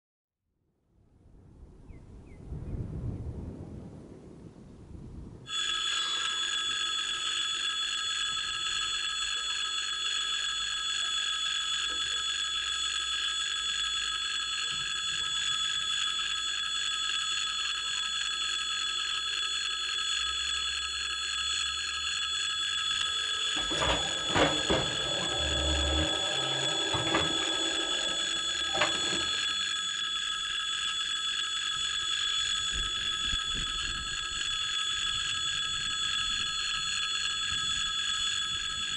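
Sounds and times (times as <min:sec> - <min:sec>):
level-crossing warning bell ringing: 0:05.5 - 0:38.9
mechanical clunks and thuds: 0:23.5 - 0:29.6.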